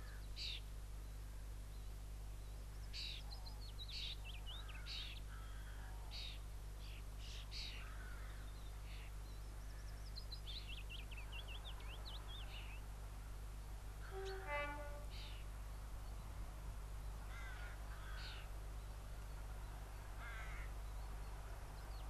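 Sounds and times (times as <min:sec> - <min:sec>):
bird twittering song: 0:00.0 - 0:12.9, 0:14.0 - 0:16.4
distant diesel locomotive drone: 0:13.9 - 0:16.0
birds calling: 0:14.0 - 0:16.4, 0:17.1 - 0:22.0.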